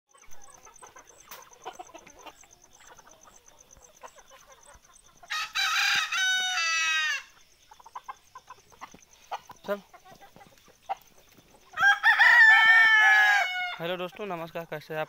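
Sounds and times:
hens clucking: 0.1s - 15.0s
rooster crowing: 5.3s - 7.3s, 11.8s - 13.8s
hens scratching: 7.7s - 13.2s.

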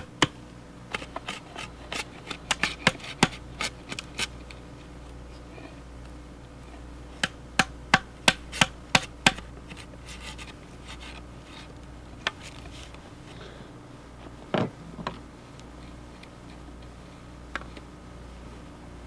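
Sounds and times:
chisel scraping wood: 9.7s - 11.7s.

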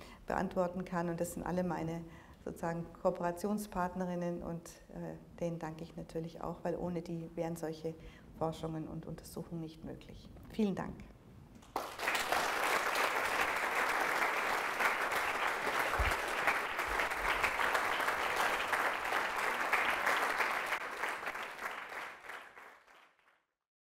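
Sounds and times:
audience applauding: 11.6s - 23.4s.

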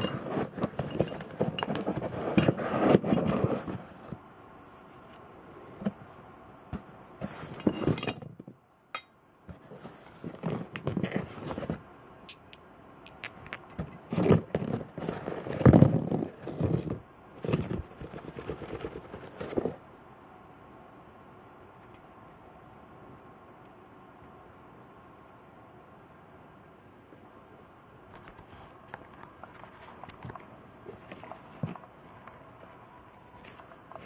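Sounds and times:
rustling: 0.0s - 5.2s, 13.6s - 19.8s, 28.2s - 34.0s.

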